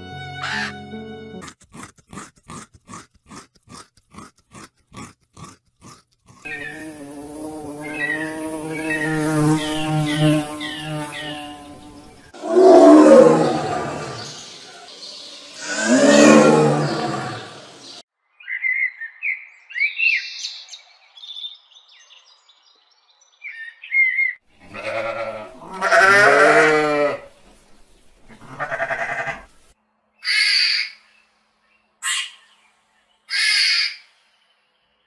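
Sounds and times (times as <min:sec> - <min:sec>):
birds chirping: 0:00.3 - 0:00.9, 0:06.5 - 0:25.3
sheep bleating: 0:00.4 - 0:00.8, 0:24.6 - 0:27.3, 0:28.4 - 0:29.5
short high hissy calls: 0:06.5 - 0:12.4.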